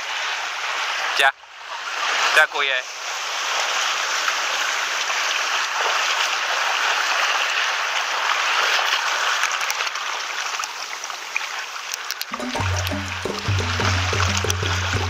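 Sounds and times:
seawater washing between rocks: 1.9 - 15.0
faint clicks: 11.9 - 12.4.

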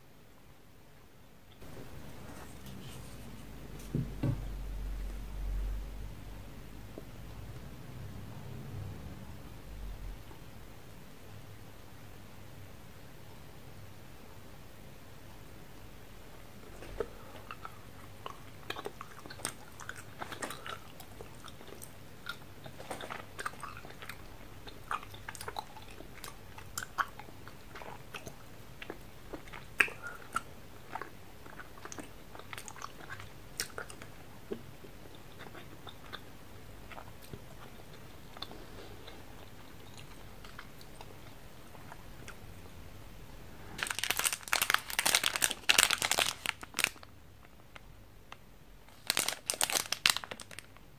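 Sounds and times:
plastic wrapper crinkling: 43.8 - 47.1, 48.9 - 50.9.

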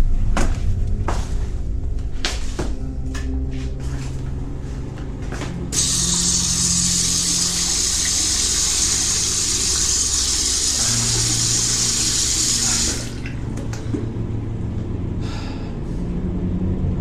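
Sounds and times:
low steady drone: 0.0 - 17.0
tap water running into sink: 5.7 - 14.2.

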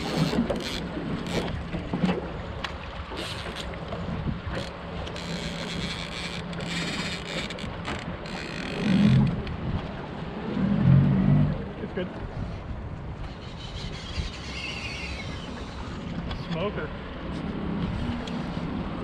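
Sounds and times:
outboard motor hum: 0.0 - 19.0
wind buffeting microphone: 3.9 - 4.7, 9.1 - 19.0.

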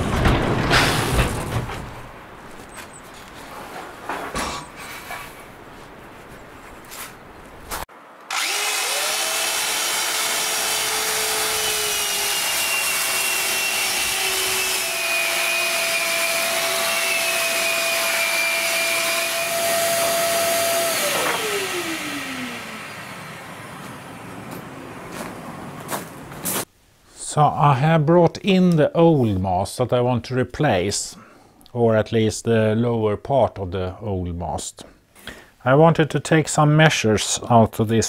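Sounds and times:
electric sander whining: 8.2 - 25.0.

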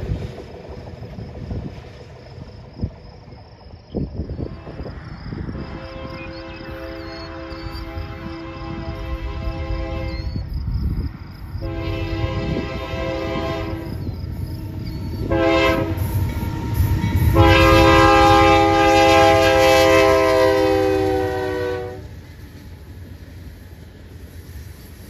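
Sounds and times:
low rumble of train: 0.0 - 25.0
locomotive air horn chord: 5.6 - 10.3, 11.6 - 14.0, 14.6 - 16.5, 17.1 - 22.1.

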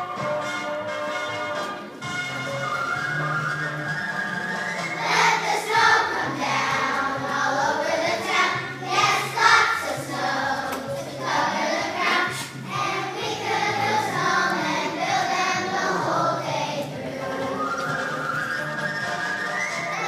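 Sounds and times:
low held accompaniment notes: 2.1 - 19.1
children's choir singing: 4.8 - 18.8.

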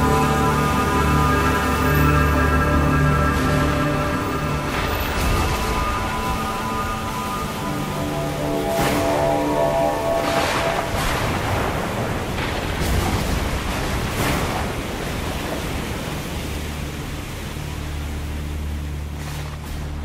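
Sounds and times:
low music drone: 0.0 - 20.0
stormy sea rushing: 0.0 - 20.0.

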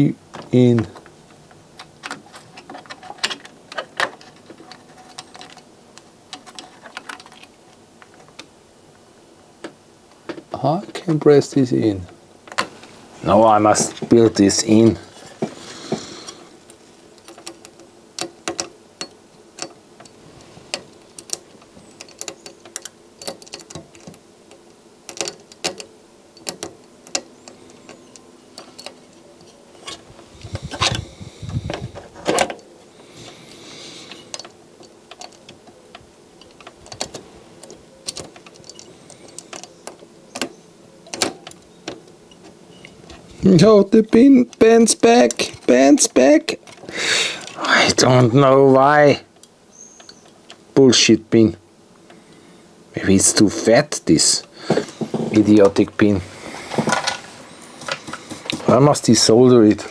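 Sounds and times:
screwdriver clicking and scraping: 1.8 - 5.7, 15.2 - 32.6, 33.5 - 43.3.

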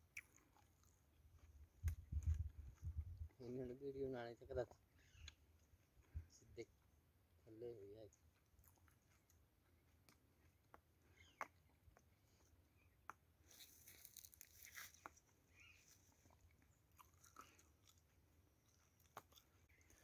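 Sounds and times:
soft rustle: 13.4 - 16.5.

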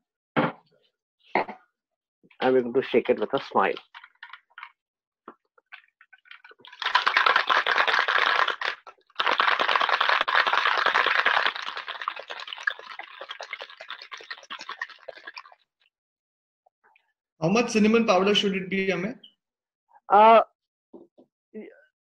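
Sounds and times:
ice rattling in cocktail shaker: 3.5 - 4.8, 5.7 - 15.7.

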